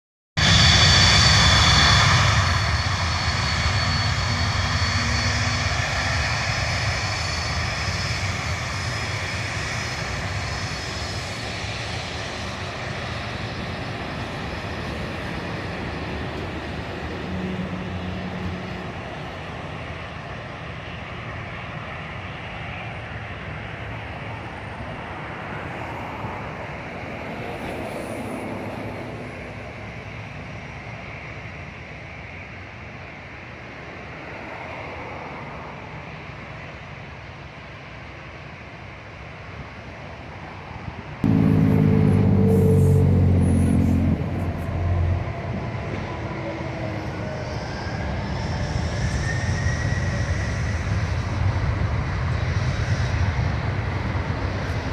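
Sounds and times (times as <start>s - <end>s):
jet engines roaring and whining: 0.4s - 54.9s.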